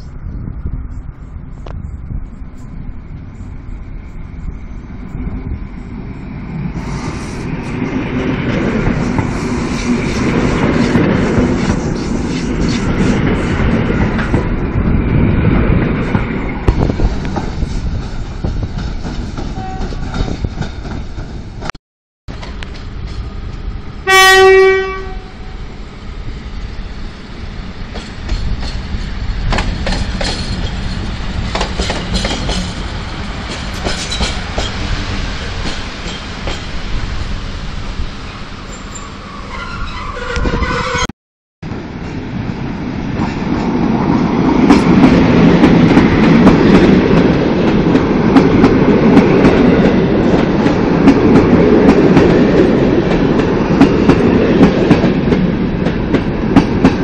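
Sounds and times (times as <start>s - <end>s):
electric train rumbling: 0.0s - 21.7s, 22.3s - 57.0s
locomotive horn blast: 19.6s - 20.0s, 24.0s - 25.6s, 39.4s - 41.1s
wheels clicking over rail joints: 27.9s - 32.8s.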